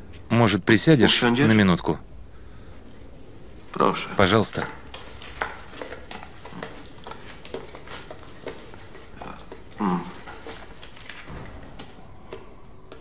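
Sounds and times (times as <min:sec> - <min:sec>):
high heels clicking on hard floor: 0:04.9 - 0:11.0.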